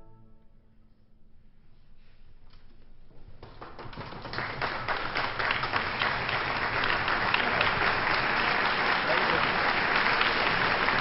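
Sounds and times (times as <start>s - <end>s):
audience applause: 3.4s - 11.0s.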